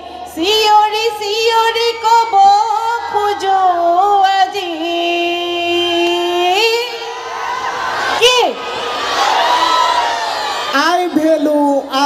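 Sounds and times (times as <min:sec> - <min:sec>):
woman singing into a microphone: 0:00.0 - 0:07.0.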